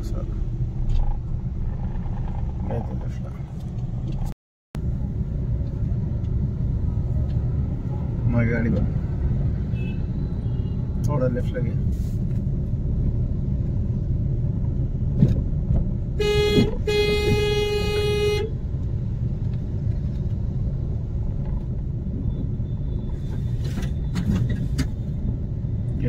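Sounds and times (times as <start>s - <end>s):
engine and road noise in car: 0.0s - 26.0s
vehicle horn: 9.7s - 10.8s, 16.2s - 18.5s.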